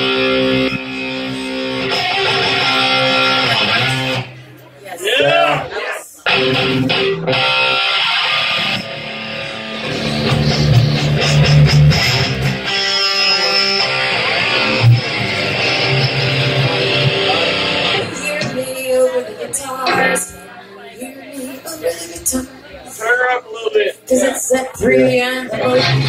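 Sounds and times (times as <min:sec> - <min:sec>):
rock band playing electric guitars: 0:00.0 - 0:04.6, 0:05.3 - 0:20.5, 0:25.5 - 0:26.0.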